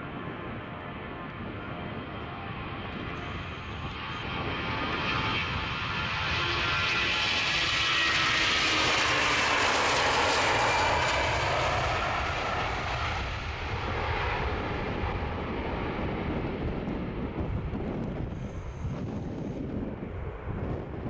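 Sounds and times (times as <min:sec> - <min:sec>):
jet engine roar: 0:00.0 - 0:21.0.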